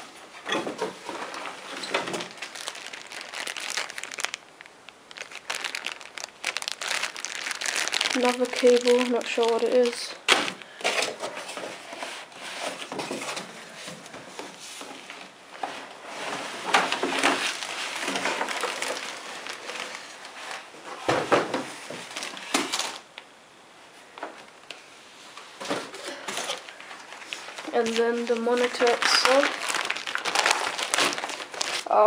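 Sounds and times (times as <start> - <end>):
plastic bags rustling: 0.0 - 23.2, 25.5 - 32.0
packing pieces knocking: 0.9 - 11.2, 16.8 - 20.1, 25.7 - 31.8.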